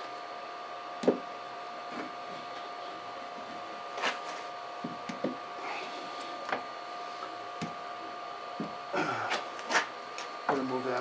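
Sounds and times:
steady two-tone hum: 0.0s - 11.0s
knocks of wood on wood: 1.0s - 1.2s.

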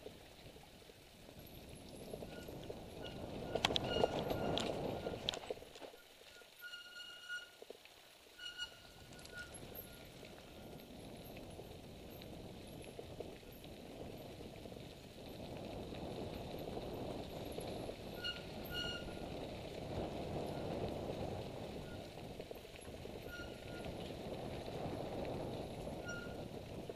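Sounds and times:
bike rattling over bumps: 1.3s - 6.7s, 8.7s - 26.9s
short high squeaks: 2.3s - 7.7s, 8.3s - 10.8s, 18.2s - 19.3s, 23.2s - 24.0s, 26.0s - 26.6s.

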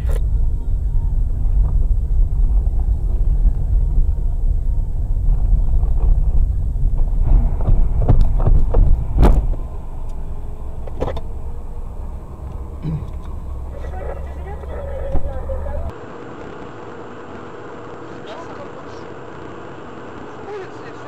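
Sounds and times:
car engine and tyres rumbling: 0.0s - 21.0s.

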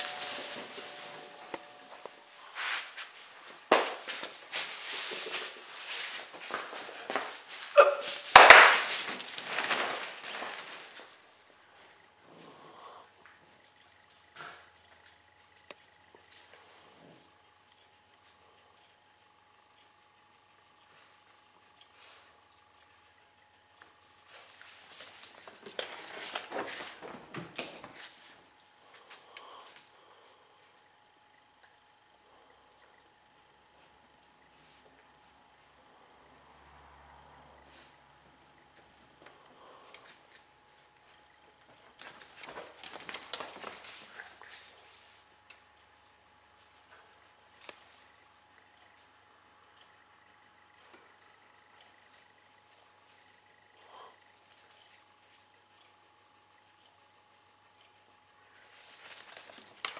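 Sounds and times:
dogs scampering and scrabbling: 0.0s - 2.2s, 3.0s - 17.3s, 23.8s - 29.2s, 38.8s - 45.2s, 58.6s - 59.9s
fabric tunnel rustling: 8.5s - 11.2s.

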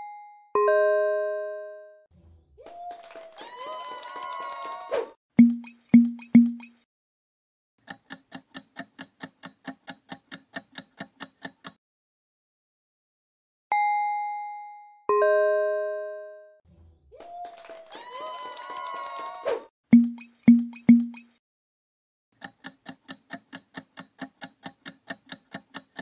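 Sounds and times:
bell-like chimes: 0.0s - 1.9s, 13.7s - 16.4s
rapid timer ticking: 5.4s - 6.8s, 7.8s - 11.8s, 19.9s - 21.4s, 22.4s - 26.0s.

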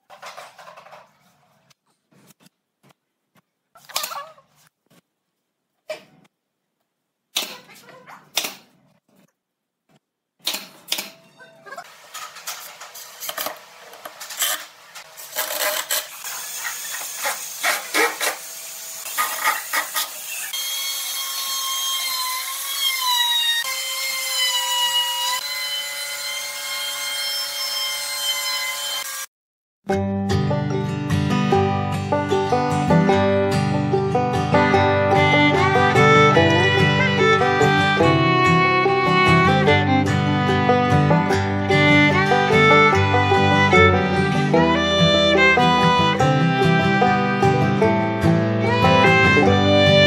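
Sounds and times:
power tool cutting wood: 13.0s - 29.3s, 48.6s - 50.0s.

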